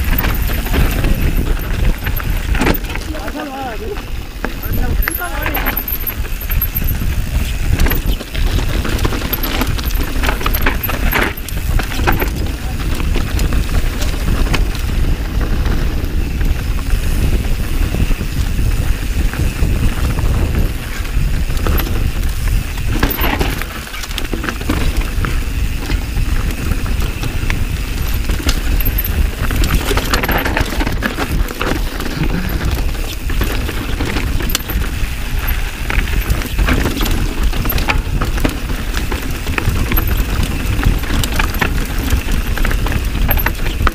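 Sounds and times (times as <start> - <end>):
bike chain and frame rattling: 0.0 - 43.9
bike tyres over dirt: 0.0 - 43.9
wind rumble: 0.0 - 43.9.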